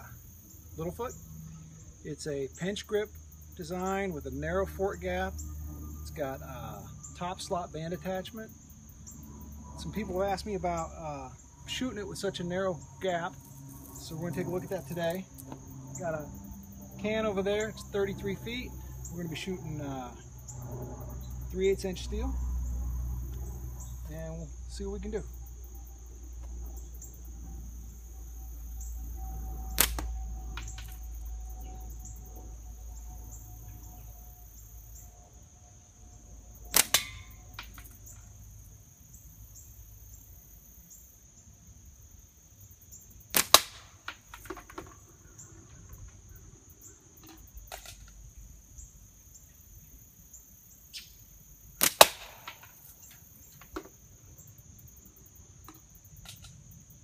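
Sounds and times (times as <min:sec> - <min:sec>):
high drone of insects: 0:00.0 - 0:57.0
slingshot bands cracking: 0:29.4 - 0:31.2, 0:36.7 - 0:38.2, 0:43.3 - 0:45.0, 0:47.2 - 0:48.2, 0:51.8 - 0:53.9
ball striking a can: 0:29.8 - 0:30.1.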